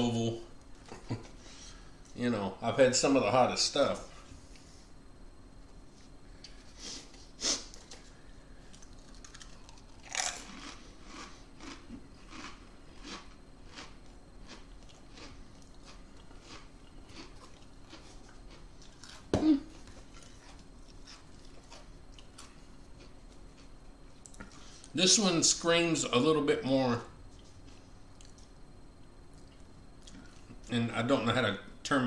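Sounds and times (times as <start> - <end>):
potato crisps crunching: 8.7 - 24.4.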